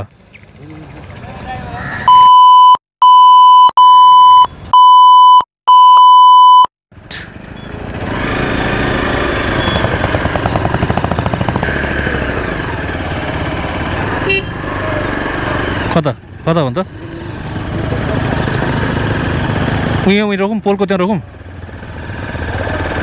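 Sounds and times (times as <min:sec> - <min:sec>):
censor bleep: 0:02.1 - 0:06.7
motorcycle engine pulling away: 0:07.3 - 0:20.2, 0:21.3 - 0:23.0.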